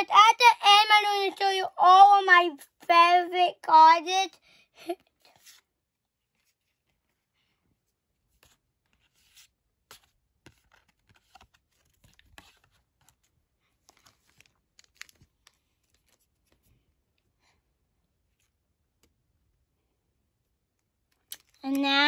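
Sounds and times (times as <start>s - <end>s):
trading cards rustling and clicking: 8.3s - 16.8s, 21.0s - 21.9s.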